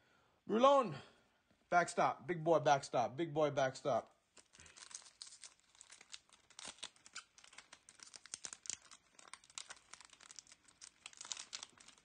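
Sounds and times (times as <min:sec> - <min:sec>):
wrapper crinkling and tearing: 0:04.3 - 0:12.0.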